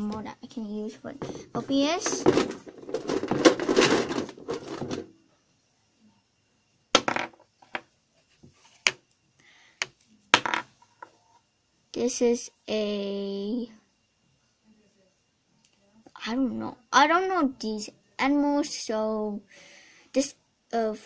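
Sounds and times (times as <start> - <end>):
rustling handling noise: 1.1 - 5.2
plastic toys knocking on table: 1.2 - 5.1, 7.0 - 7.9, 9.8 - 10.7.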